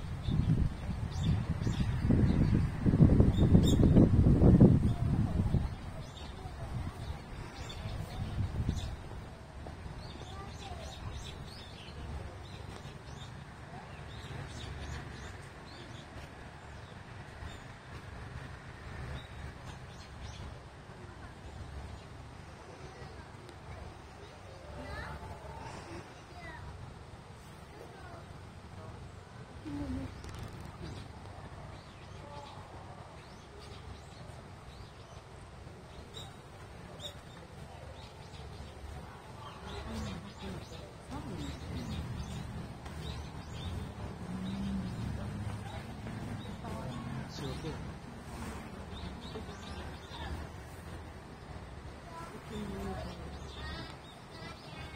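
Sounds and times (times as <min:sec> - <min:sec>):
small birds chirping: 0:00.0 - 0:28.3, 0:29.3 - 0:54.9
low outdoor rumble: 0:00.0 - 0:54.9
steady low rumble: 0:38.5 - 0:54.0.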